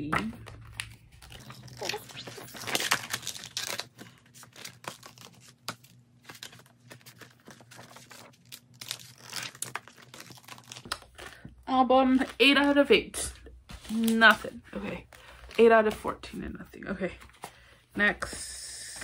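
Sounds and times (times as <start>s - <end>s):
paper and card rustling: 0.2s - 11.5s, 13.7s - 16.4s.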